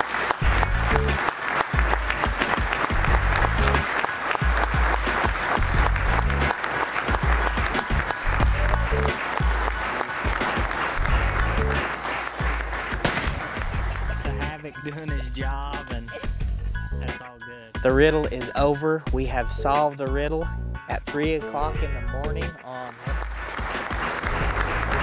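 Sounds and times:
audience applauding: 0.0 - 14.5, 22.7 - 25.0
music with heavy bass beat: 0.4 - 1.2, 2.8 - 3.8, 4.4 - 6.5.

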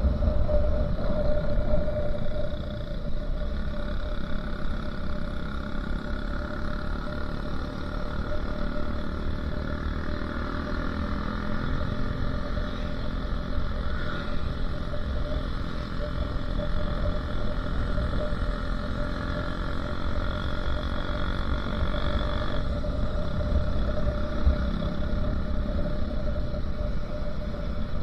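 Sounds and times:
wind rumbling on microphone: 0.0 - 5.0
motorcycle engine running: 0.0 - 28.0.

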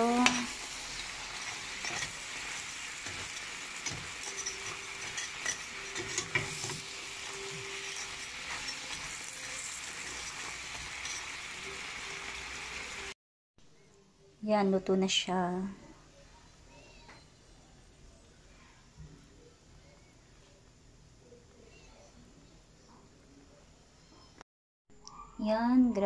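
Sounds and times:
crabs sizzling in a pan: 0.0 - 13.2
metal spoon scraping a pan: 0.2 - 11.7.

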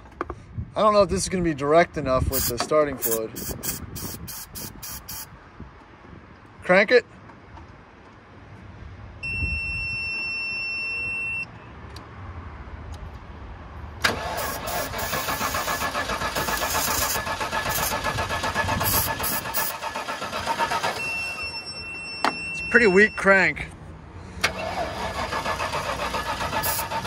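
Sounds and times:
starter motor cranking engine: 2.3 - 5.2, 14.0 - 21.2, 24.4 - 27.0
electronic beep: 9.2 - 11.5, 21.0 - 23.3.

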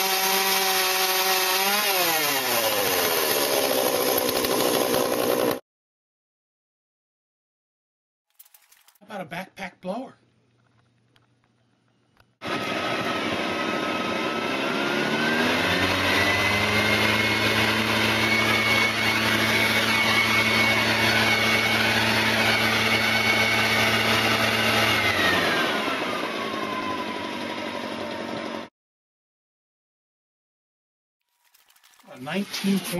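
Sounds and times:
leaf blower engine revving: 0.0 - 5.6, 12.4 - 28.2.

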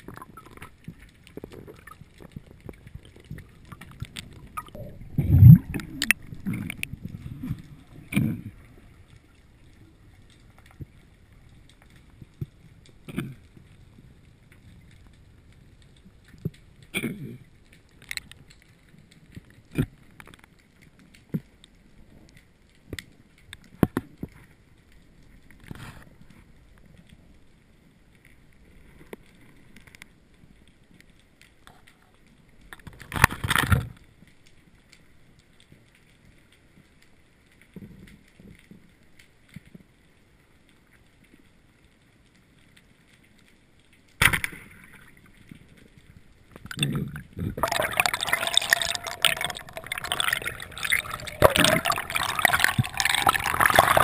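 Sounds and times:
faint water movement: 0.0 - 44.0, 44.6 - 54.0
muffled underwater noise: 46.8 - 54.0.

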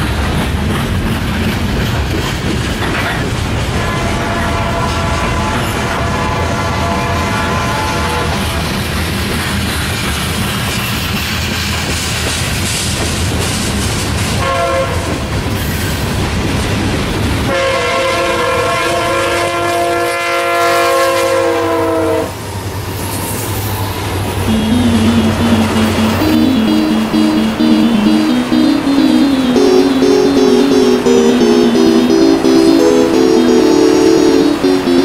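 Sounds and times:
music: 24.5 - 35.0.

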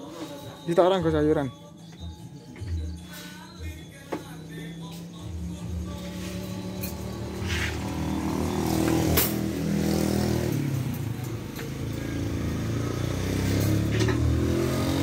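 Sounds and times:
motorcycle engine running: 4.4 - 15.0.

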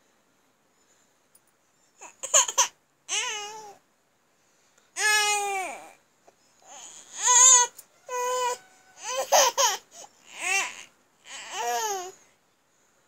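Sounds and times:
baby babbling: 2.0 - 3.8, 5.0 - 6.0, 6.6 - 12.2.

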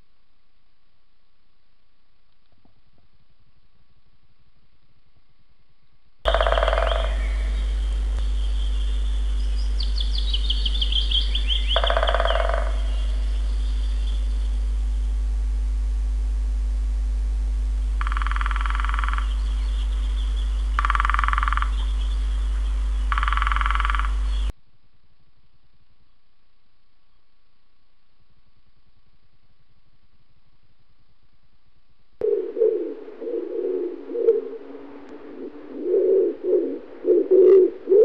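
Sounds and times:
birds trilling: 6.3 - 14.7, 18.0 - 24.5
short buzzy bird calls: 6.3 - 15.0, 17.9 - 24.5
loud low hum: 6.3 - 24.5, 32.2 - 37.9.

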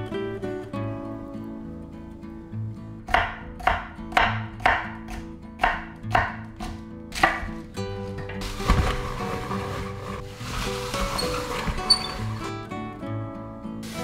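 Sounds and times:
knife chopping on cutting board: 3.1 - 7.7.

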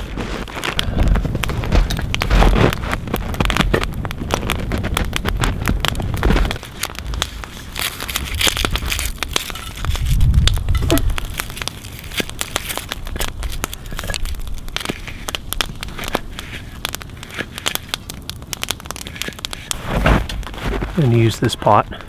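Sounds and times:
onion crunching under knife: 5.6 - 19.8.

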